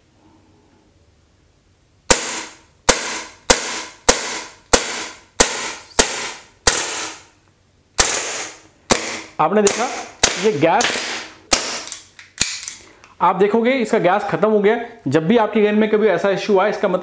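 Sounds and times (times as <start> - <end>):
air pistol shots cracking: 2.1 - 7.3, 8.0 - 12.8.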